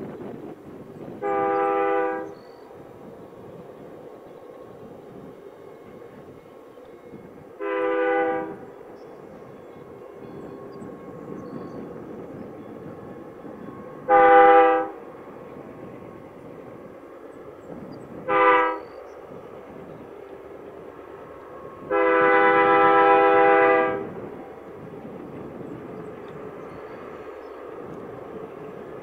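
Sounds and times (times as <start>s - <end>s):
low rumble of train: 0.0s - 29.0s
distant locomotive air horn blasts: 1.2s - 2.6s, 7.0s - 16.2s, 18.1s - 19.4s, 21.6s - 24.4s.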